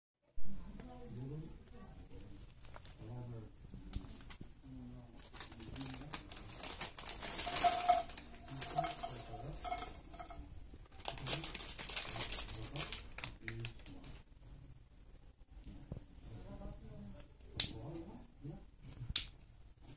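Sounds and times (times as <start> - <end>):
snack bag crinkling: 5.2 - 10.3, 10.9 - 14.1
puffs falling onto a clay plate: 7.1 - 10.5.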